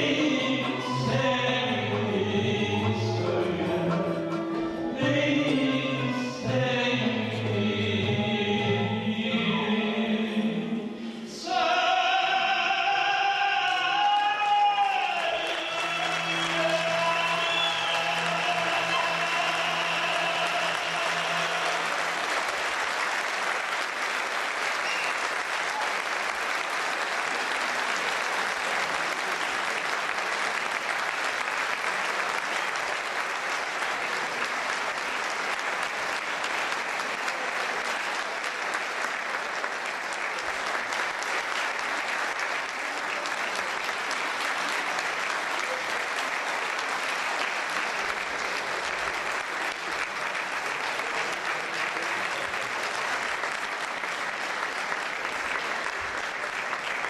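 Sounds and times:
audience applauding: 0:12.0 - 0:57.0.

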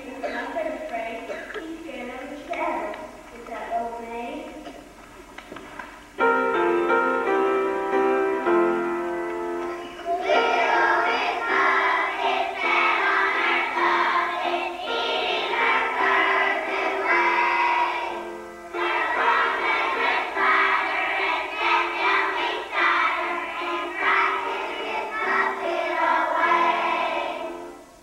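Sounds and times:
piano accompaniment: 0:06.0 - 0:28.0
children singing: 0:09.6 - 0:27.9.

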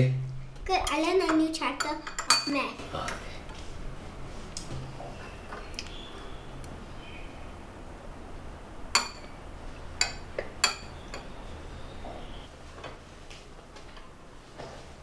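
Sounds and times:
spoon clinking ceramic bowl: 0:10.0 - 0:11.4.

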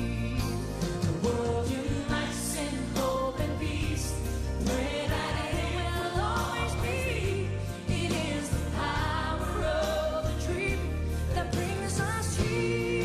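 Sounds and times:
bass line: 0:00.0 - 0:13.0
choir singing: 0:00.0 - 0:13.0
woman singing into microphone: 0:05.7 - 0:13.0.

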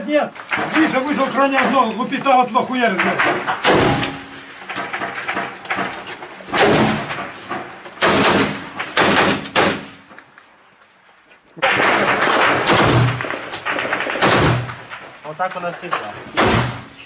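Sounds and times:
rifle gunfire echoing: 0:06.5 - 0:07.1, 0:08.0 - 0:10.1, 0:11.8 - 0:15.0, 0:16.4 - 0:16.9.

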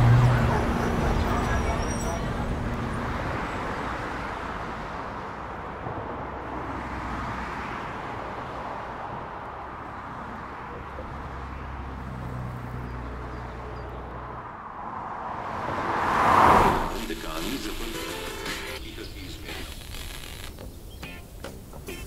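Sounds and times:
distant road traffic hiss: 0:14.7 - 0:22.0.

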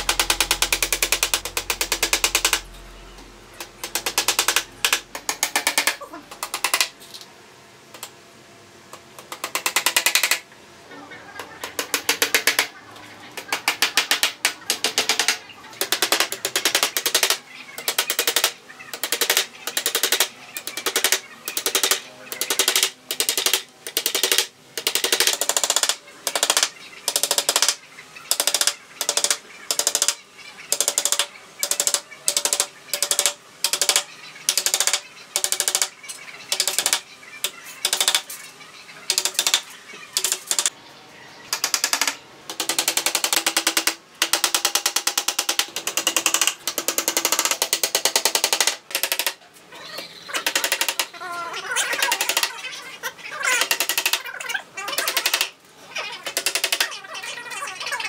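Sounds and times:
hammer tapping nails: 0:03.6 - 0:07.0, 0:09.2 - 0:10.4, 0:13.4 - 0:35.9, 0:37.8 - 0:38.2, 0:39.1 - 0:39.6, 0:40.2 - 0:40.7, 0:41.5 - 0:49.4, 0:50.4 - 0:51.1, 0:52.0 - 0:52.5, 0:53.6 - 0:54.2, 0:54.9 - 0:55.5, 0:56.3 - 0:56.9.

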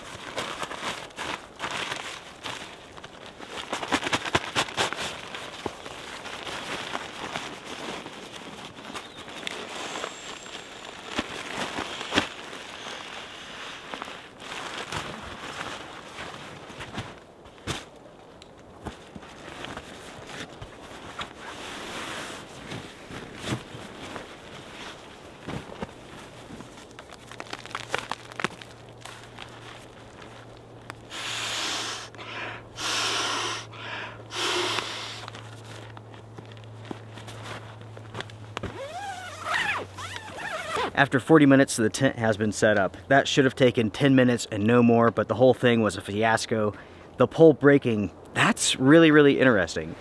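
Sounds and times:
nylon gear rustling: 0:00.0 - 0:31.2, 0:34.3 - 0:41.0
person blowing into valve: 0:31.1 - 0:35.3.

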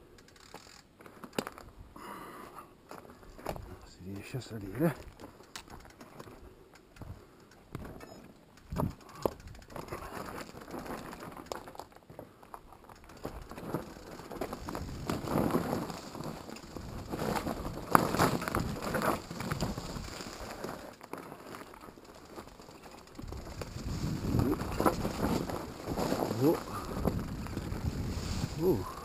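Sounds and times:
bike rattling: 0:00.0 - 0:01.8, 0:02.9 - 0:29.0
wheels knocking on rocks: 0:02.9 - 0:29.0
tyres crunching over stones: 0:07.7 - 0:29.0.

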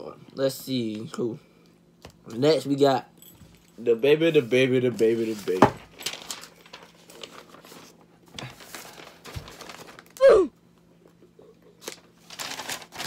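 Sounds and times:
paper rustling and crinkling: 0:04.5 - 0:10.3, 0:11.8 - 0:13.0
person sighing: 0:10.2 - 0:10.6.

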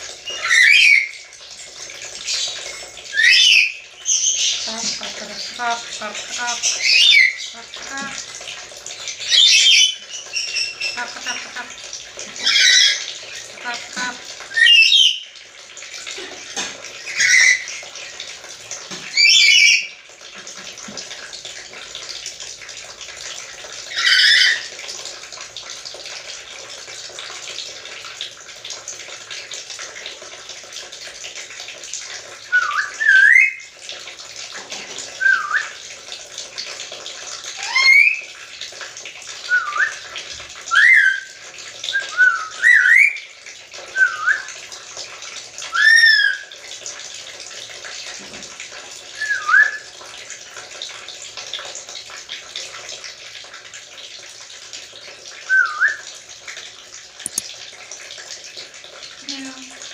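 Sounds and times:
parrot squawk: 0:00.3 - 0:01.2, 0:03.1 - 0:08.2, 0:09.3 - 0:11.8, 0:12.4 - 0:15.2, 0:17.1 - 0:17.8, 0:19.2 - 0:19.9, 0:23.9 - 0:24.7, 0:37.6 - 0:38.2, 0:45.7 - 0:46.4.

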